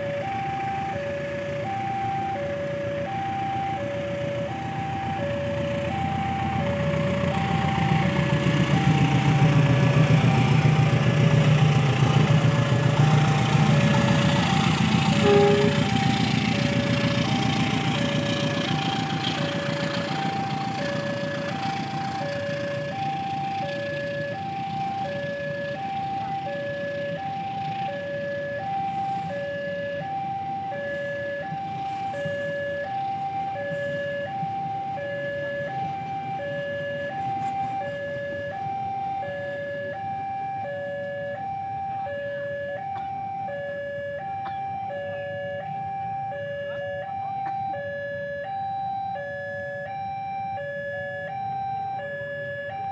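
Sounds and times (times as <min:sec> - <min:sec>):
passing train rumble: 0:00.0 - 0:39.9
level crossing two-note alarm: 0:12.4 - 0:27.3, 0:36.4 - 0:52.9.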